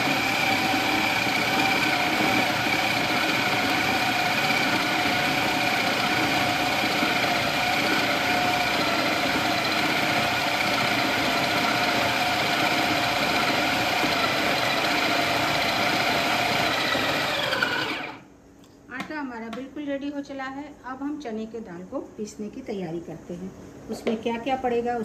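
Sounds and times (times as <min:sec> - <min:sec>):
food processor motor humming: 0:00.0 - 0:18.2.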